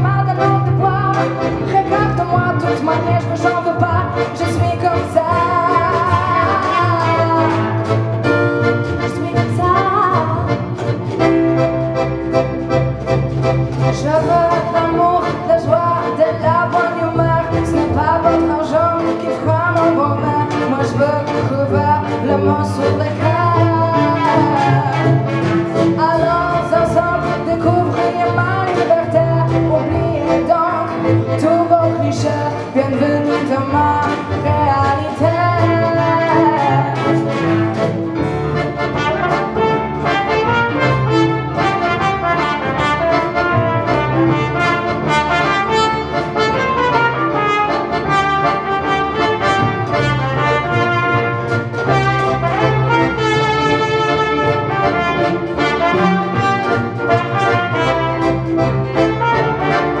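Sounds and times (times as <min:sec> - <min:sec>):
woman singing: 0:00.0 - 0:07.9, 0:08.9 - 0:10.6, 0:13.9 - 0:37.5
accordion: 0:00.0 - 1:00.0
double bass: 0:00.0 - 1:00.0
piano: 0:00.0 - 1:00.0
trumpet playing: 0:35.3 - 1:00.0.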